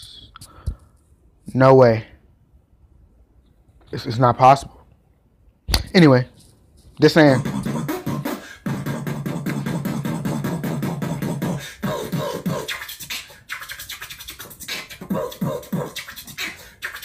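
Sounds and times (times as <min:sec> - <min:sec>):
short pitched vocal sounds: 0:07.2 - 0:17.0
beatboxing percussive clicks: 0:07.3 - 0:17.0.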